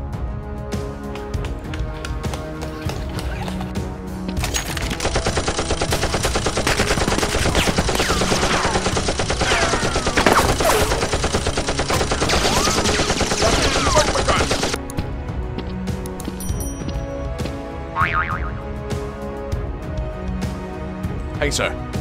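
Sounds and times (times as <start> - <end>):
rapid automatic gunfire: 4.7 - 14.8.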